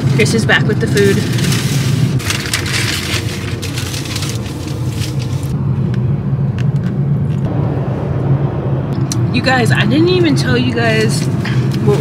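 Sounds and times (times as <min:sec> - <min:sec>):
rustling: 0:00.0 - 0:05.6
car engine idling: 0:00.0 - 0:12.0.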